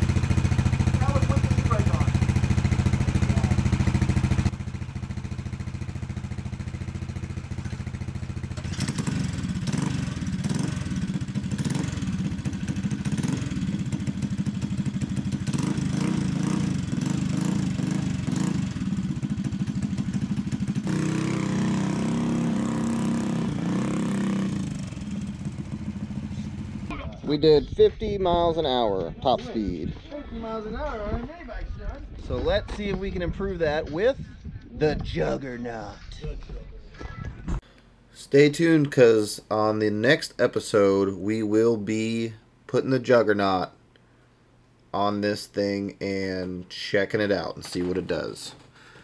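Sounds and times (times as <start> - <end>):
mini bike engines revving: 0.0 - 4.6, 6.1 - 27.0.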